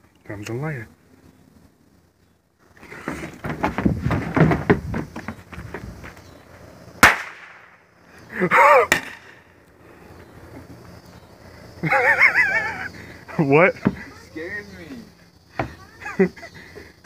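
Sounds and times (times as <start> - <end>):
firecracker bang: 7.0 - 7.8, 8.9 - 9.4.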